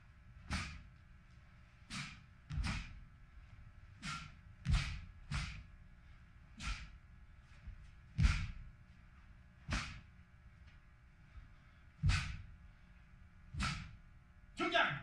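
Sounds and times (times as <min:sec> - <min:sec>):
bare feet landing on floor: 0:02.0 - 0:03.0, 0:04.0 - 0:05.6, 0:07.6 - 0:08.7, 0:09.7 - 0:10.1, 0:12.0 - 0:12.5, 0:13.6 - 0:14.0.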